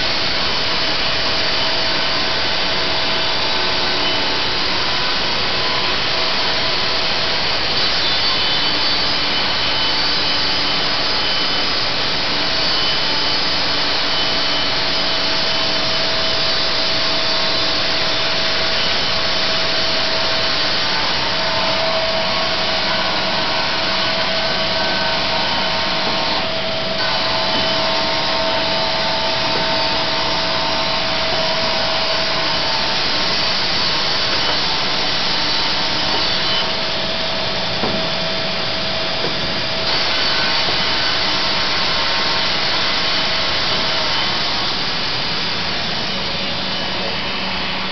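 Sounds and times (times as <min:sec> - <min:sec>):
saw blade whining through wood: 0:00.0 - 0:47.9.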